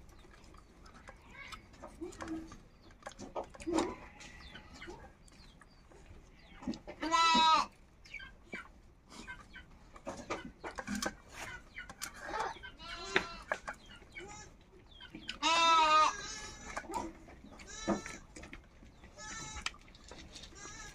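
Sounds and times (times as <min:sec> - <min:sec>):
chickens clucking: 0:00.0 - 0:20.9
goat bleating: 0:03.7 - 0:04.7, 0:07.0 - 0:07.7, 0:12.8 - 0:13.5, 0:15.4 - 0:16.7, 0:17.6 - 0:18.2, 0:19.2 - 0:19.6, 0:20.4 - 0:20.9.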